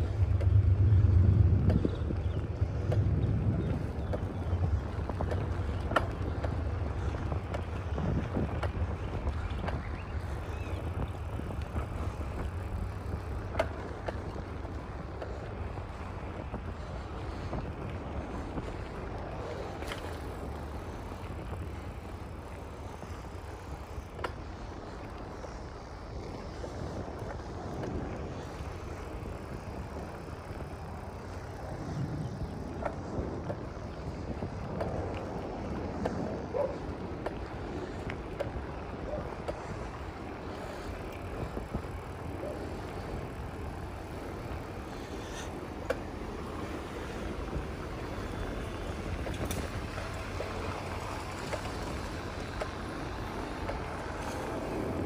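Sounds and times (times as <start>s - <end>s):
low steady street rumble: 0.0s - 55.0s
faint clicks: 48.1s - 54.6s.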